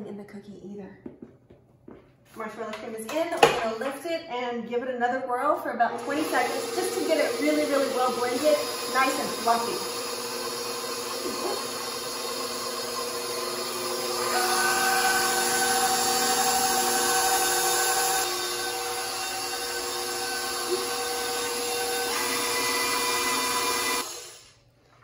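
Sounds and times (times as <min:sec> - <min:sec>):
stand mixer motor whine: 0:05.9 - 0:24.4.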